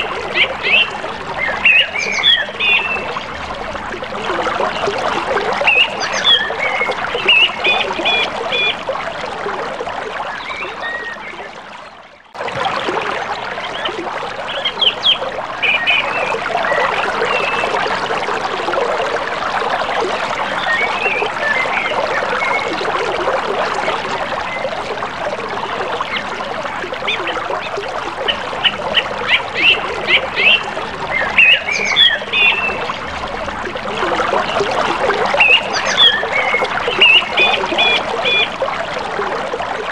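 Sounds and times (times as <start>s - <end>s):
birds chirping: 0.0s - 3.4s, 5.6s - 8.8s, 13.6s - 17.7s, 27.1s - 33.2s, 35.4s - 38.5s
river water flowing: 0.0s - 39.9s.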